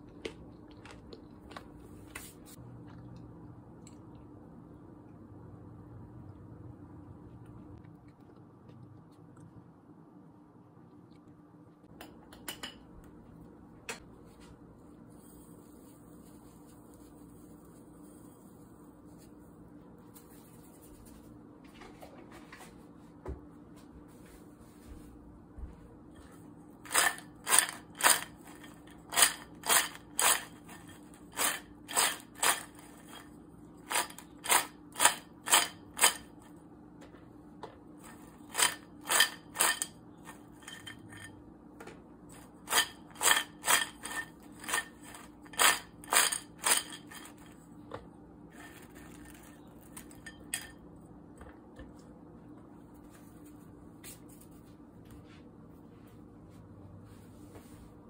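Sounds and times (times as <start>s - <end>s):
crunchy clatters of fried food: 48.6s - 50.9s.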